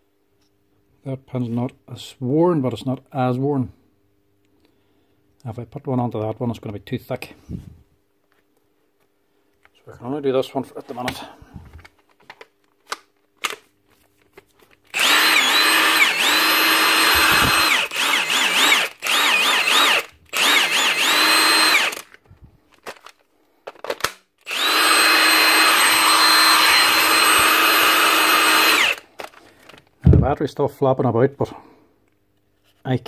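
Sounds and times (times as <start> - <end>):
impact wrench spinning: 14.9 - 22.1, 24.4 - 29.0.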